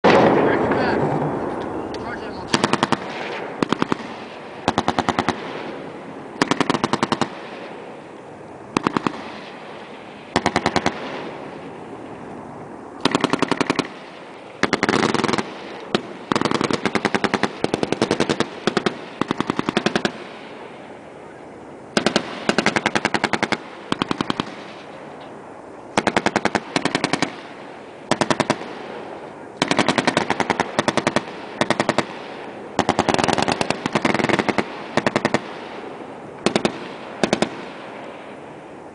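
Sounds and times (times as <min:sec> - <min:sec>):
machine gun bursts: 0:02.5 - 0:05.4, 0:06.4 - 0:07.4, 0:10.3 - 0:11.1, 0:13.0 - 0:14.0, 0:14.6 - 0:20.2, 0:22.0 - 0:24.9, 0:26.0 - 0:27.5, 0:28.1 - 0:28.7, 0:29.6 - 0:32.2, 0:32.8 - 0:35.5, 0:36.4 - 0:37.6.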